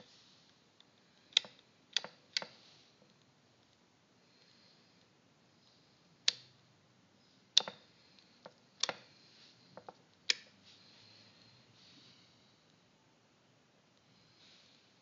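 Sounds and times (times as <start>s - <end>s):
geiger counter clicking: 1.2s - 2.6s, 6.2s - 6.6s, 7.6s - 9.1s.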